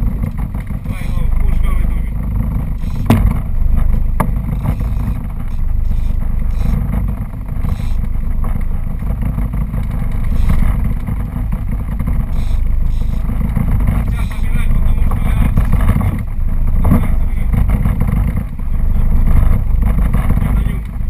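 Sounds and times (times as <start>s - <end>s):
boat engine rumbling: 0.0s - 21.0s
sharp knocks: 2.5s - 8.1s.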